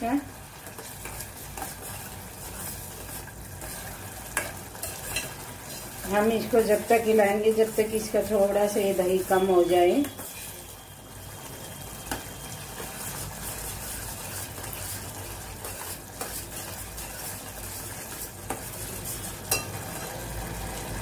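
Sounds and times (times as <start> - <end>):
chillies sizzling in a pot: 0.0 - 21.0
metal spoon scraping a pot: 0.7 - 6.5, 12.8 - 20.2.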